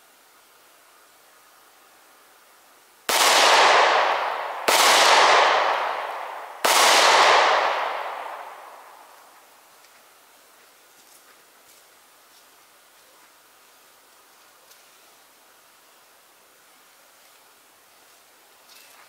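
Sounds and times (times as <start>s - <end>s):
pistol shots: 3.1s - 9.1s.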